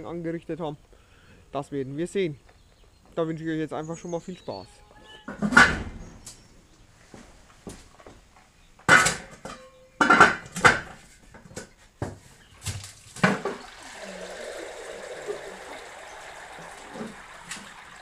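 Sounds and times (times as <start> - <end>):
water pouring onto tiles: 13.1 - 18.0
cooking pot clunking: 13.2 - 18.0.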